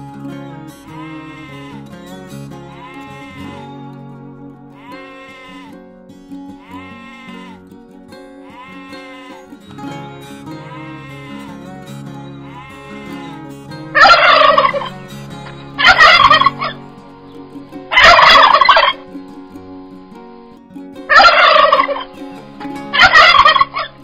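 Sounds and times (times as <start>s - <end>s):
goat bleating: 0.8s - 4.1s, 4.7s - 9.7s, 10.4s - 16.9s
turkeys gobbling: 14.0s - 19.4s, 21.1s - 22.2s, 22.9s - 23.9s.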